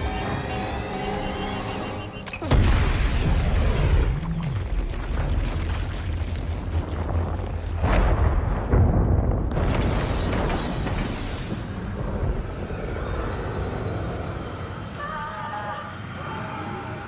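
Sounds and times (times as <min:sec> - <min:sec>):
film score music: 0:00.0 - 0:04.6
explosions booming: 0:02.5 - 0:13.1
dense rumble: 0:02.5 - 0:14.4.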